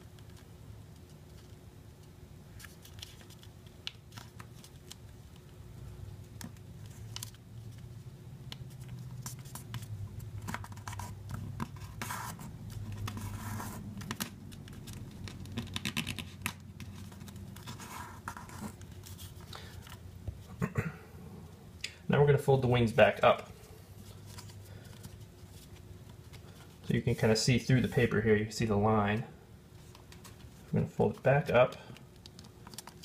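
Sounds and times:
paper being folded and creased: 0:02.5 - 0:05.4, 0:08.6 - 0:20.0, 0:32.2 - 0:33.0
paper rustling: 0:02.5 - 0:05.5, 0:08.7 - 0:20.0.

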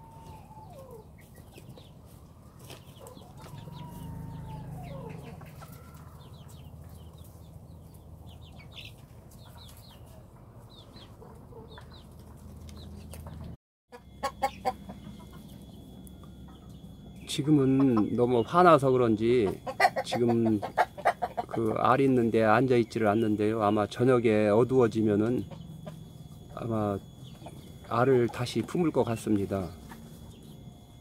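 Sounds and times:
chickens clucking and cackling: 0:00.0 - 0:31.0
rooster crowing: 0:02.5 - 0:06.4.

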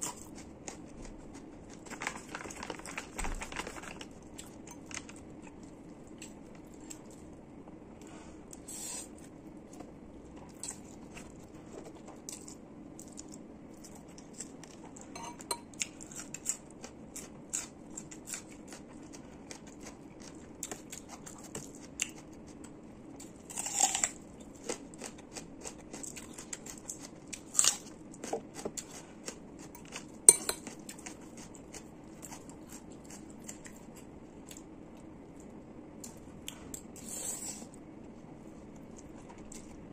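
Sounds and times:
fork clinking on ceramic bowl: 0:15.2 - 0:15.7, 0:30.3 - 0:30.7.

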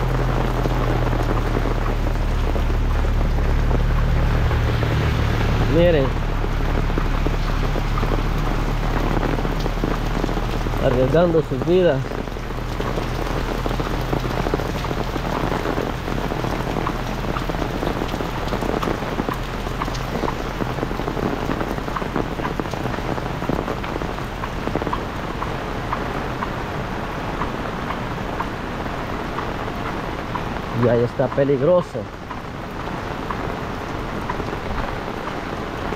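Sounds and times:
heavy rain hissing: 0:00.0 - 0:35.9
raindrops ticking: 0:00.0 - 0:35.9.

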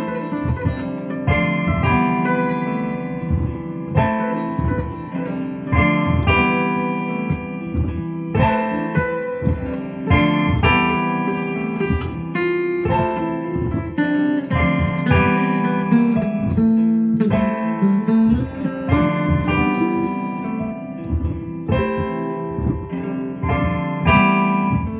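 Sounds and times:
guitar plucked notes and chords: 0:00.0 - 0:24.9
low bass notes: 0:00.0 - 0:24.9.

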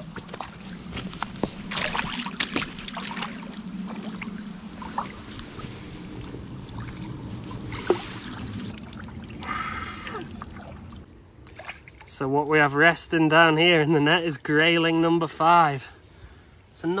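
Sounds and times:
fish splashing in water: 0:01.5 - 0:05.3.

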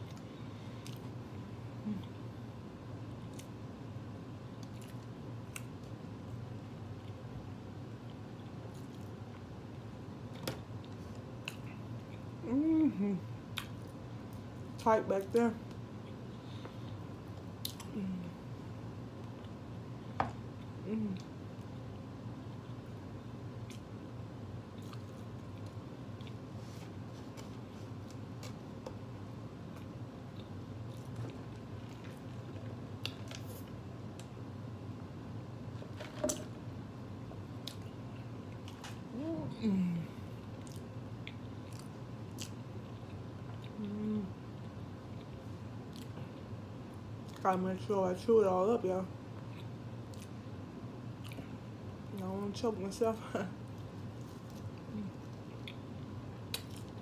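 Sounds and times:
steady low hum: 0:00.0 - 0:57.0
person chewing food: 0:24.6 - 0:34.4, 0:40.4 - 0:46.5, 0:51.1 - 0:51.6, 0:53.6 - 0:57.0.

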